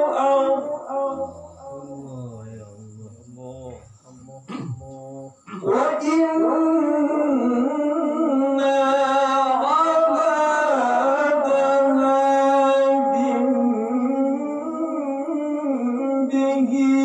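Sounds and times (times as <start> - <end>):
man chanting melodic recitation: 0.0 - 17.0.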